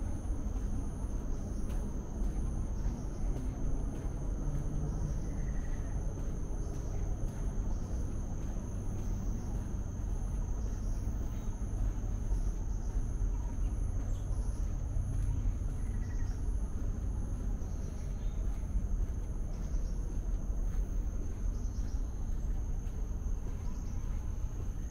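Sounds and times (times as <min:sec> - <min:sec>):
insects chirring: 0:00.0 - 0:24.9.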